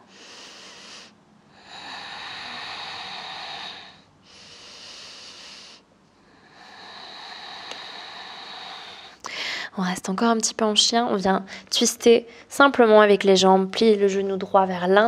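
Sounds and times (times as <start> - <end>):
woman breathing deeply: 0.0 - 9.8.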